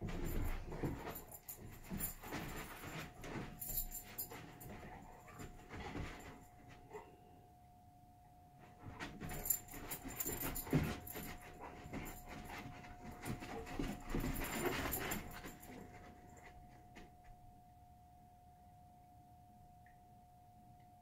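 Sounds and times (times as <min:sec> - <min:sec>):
dogs vocalizing and panting: 0:09.4 - 0:16.1.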